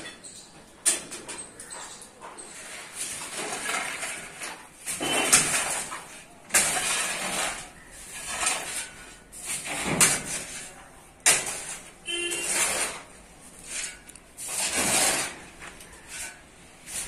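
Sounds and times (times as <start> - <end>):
shovels scraping concrete rubble: 0.0 - 17.0.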